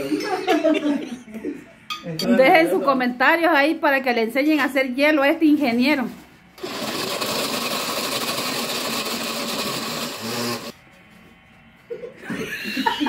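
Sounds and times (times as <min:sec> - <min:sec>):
blender crushing ice: 0:06.6 - 0:10.8.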